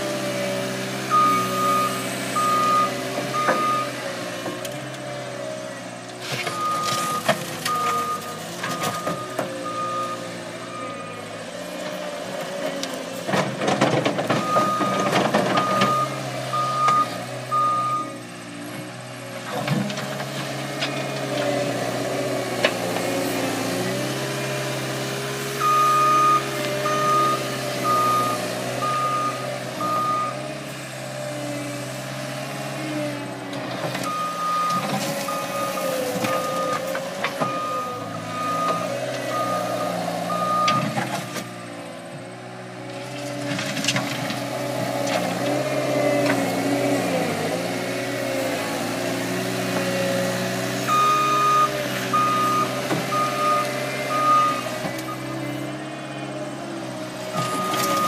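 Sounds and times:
diesel engine working: 0.0 - 58.0
reversing alarm beeps: 1.1 - 4.0, 6.5 - 11.2, 14.4 - 18.2, 25.6 - 30.4, 34.1 - 36.8, 37.4 - 40.9, 50.9 - 55.4, 57.4 - 58.0.

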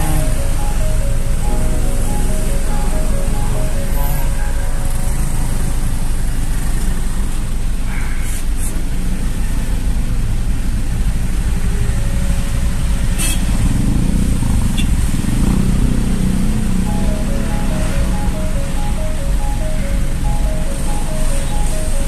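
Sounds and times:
motorcycles passing close: 0.0 - 7.6, 8.6 - 22.0
low rumble of traffic engines: 0.0 - 22.0.

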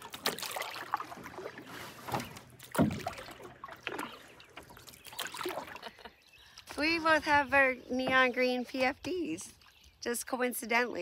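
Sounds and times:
canoe paddle strokes in water: 0.0 - 5.9
water lapping at hull: 0.0 - 10.0.

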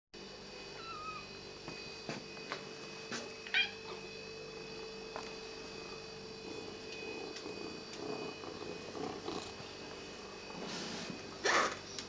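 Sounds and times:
cat meowing: 0.8 - 1.3, 3.5 - 4.0.

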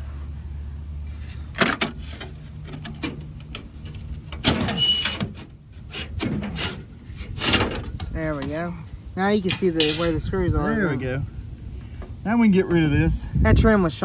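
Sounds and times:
wind buffeting microphone: 7.0 - 14.0.

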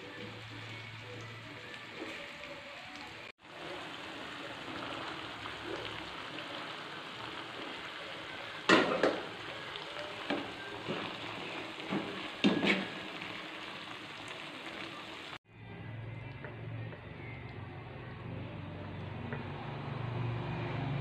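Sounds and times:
sauce sizzling in a frying pan: 0.0 - 15.4
utensils knocking against pan: 11.9 - 13.0.

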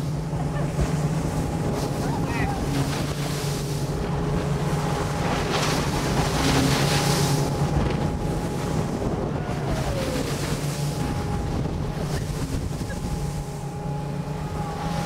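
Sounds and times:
boat engine drone: 0.0 - 15.0
wind buffeting microphone: 0.0 - 15.0.

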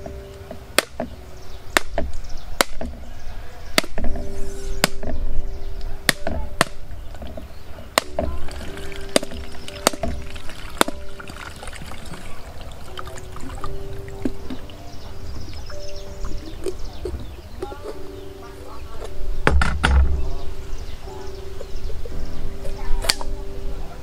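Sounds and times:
cleaver knocking coconut: 1.8 - 3.0, 3.8 - 4.1, 8.0 - 11.3.

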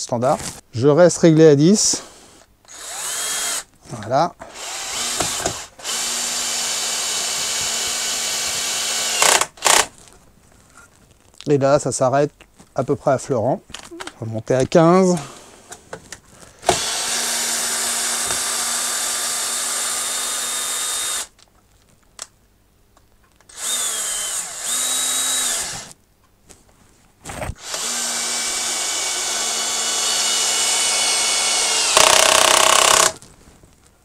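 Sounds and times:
drill motor whirring: 2.2 - 3.7, 4.4 - 9.9, 16.6 - 21.3, 23.5 - 26.0, 27.6 - 33.2
screw seating rough burst: 27.5 - 33.2.

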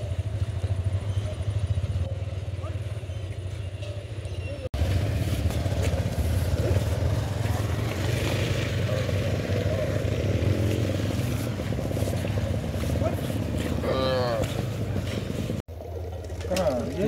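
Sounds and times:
motorcycle engine running: 0.0 - 4.2, 4.8 - 17.0.

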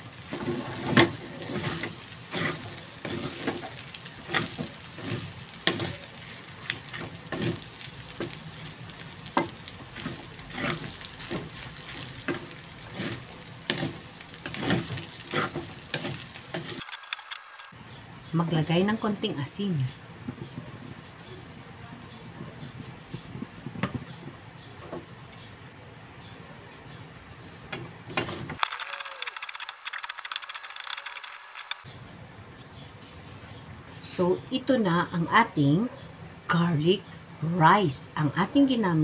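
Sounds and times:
light sizzle: 0.0 - 17.8, 18.4 - 24.2, 27.7 - 31.9
spatula scraping a wok: 0.0 - 17.8.

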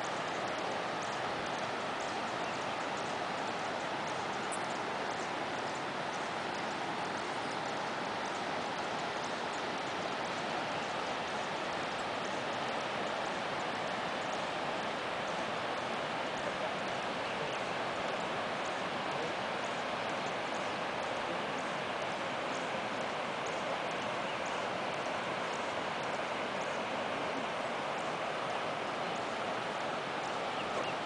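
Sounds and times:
river water rushing: 0.0 - 31.0
bird chirps: 30.5 - 31.0.

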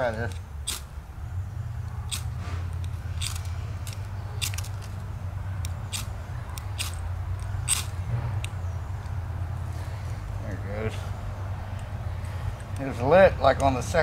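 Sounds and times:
fire striker scraping: 0.0 - 0.9, 1.8 - 9.2.

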